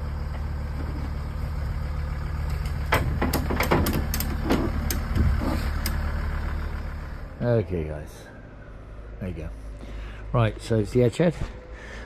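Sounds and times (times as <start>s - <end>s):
vehicle engine idling: 0.0s - 12.0s
sharp clicks and knocks: 2.4s - 6.0s.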